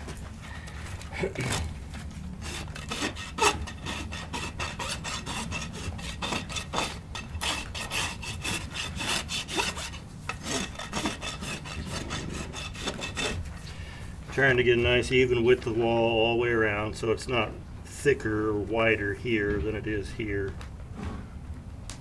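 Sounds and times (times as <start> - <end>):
hoof rasp scraping a hoof: 0.0 - 13.8.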